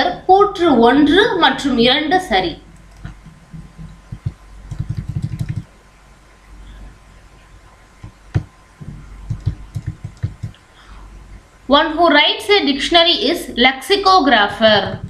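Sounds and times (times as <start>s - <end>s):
faint low hum: 0.0s - 15.0s
mouse scroll wheel thumps: 2.9s - 5.7s, 8.0s - 10.6s.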